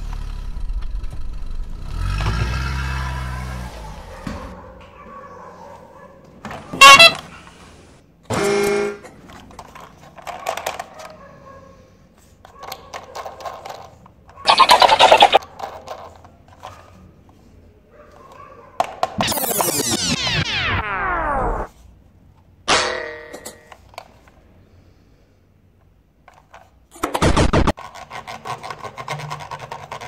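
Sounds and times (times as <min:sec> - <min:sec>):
toy horn honk: 0:06.7 - 0:07.4, 0:08.3 - 0:09.1
toy sound effect bursts: 0:06.8 - 0:07.2, 0:14.5 - 0:15.4, 0:19.2 - 0:21.7
plastic toy train clicks: 0:09.0 - 0:11.2, 0:12.4 - 0:14.6, 0:15.4 - 0:16.8, 0:26.2 - 0:27.0, 0:27.8 - 0:30.0.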